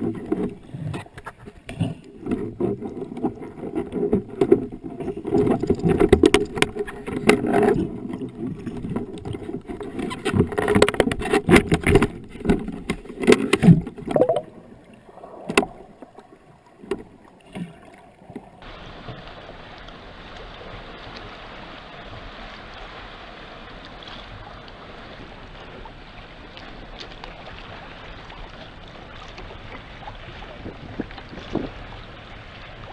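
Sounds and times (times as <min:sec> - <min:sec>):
water lapping: 0:00.0 - 0:32.9.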